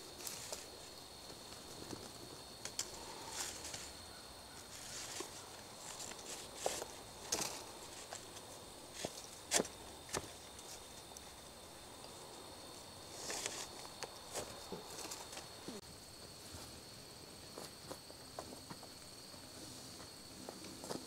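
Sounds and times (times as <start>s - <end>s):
shuffling in dry leaves: 4.6s - 9.2s.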